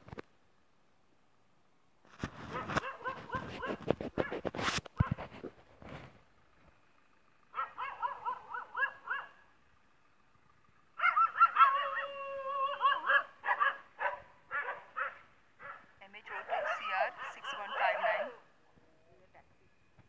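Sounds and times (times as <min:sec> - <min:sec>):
dogs whining and yelping: 0:02.5 - 0:04.3, 0:07.5 - 0:09.4, 0:11.0 - 0:18.4.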